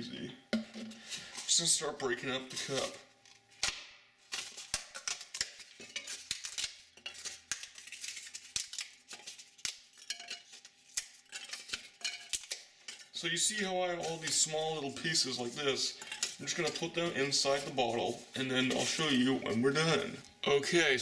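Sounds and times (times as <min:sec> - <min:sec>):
styrofoam cup cracking and snapping: 0:03.6 - 0:10.0.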